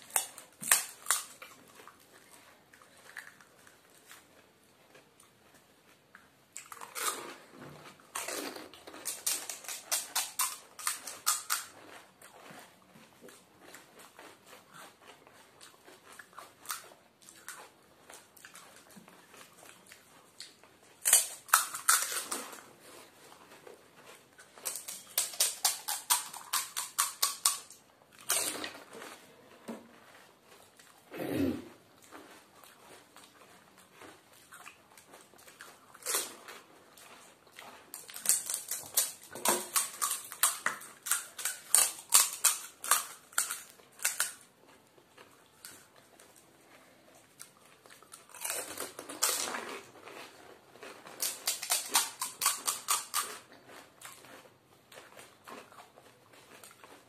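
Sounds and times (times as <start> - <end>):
crunching crisp shells: 0.0 - 2.1, 6.6 - 12.8, 20.5 - 22.7, 23.3 - 29.3, 37.8 - 57.0.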